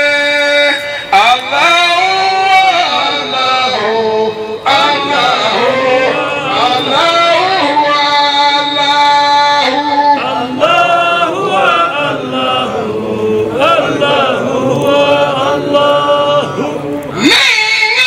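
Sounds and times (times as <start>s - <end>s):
man singing lead: 0.0s - 18.0s
voices chanting: 0.0s - 18.0s.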